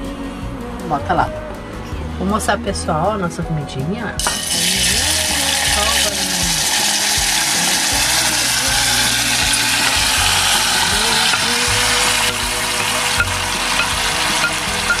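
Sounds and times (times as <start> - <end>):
vegetables sizzling in hot oil: 4.2 - 15.0.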